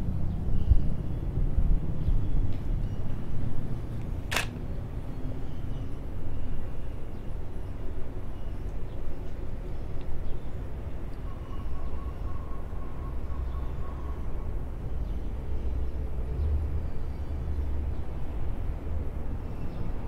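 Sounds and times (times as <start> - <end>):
sharp click: 4.0 - 4.6.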